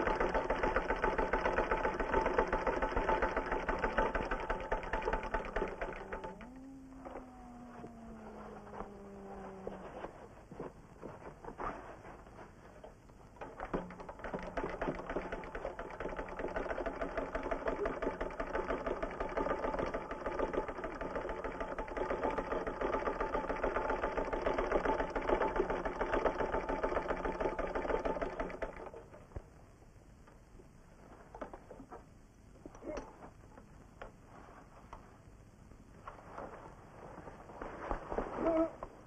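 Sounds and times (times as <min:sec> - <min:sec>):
steady low hum: 0:00.0 - 0:39.0
machine clattering: 0:13.4 - 0:29.2.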